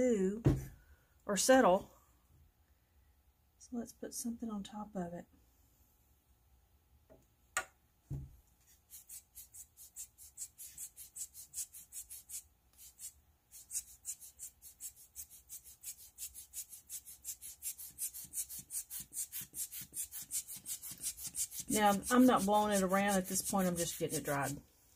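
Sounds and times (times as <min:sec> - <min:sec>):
thud: 0:00.4 - 0:00.8, 0:08.1 - 0:08.3.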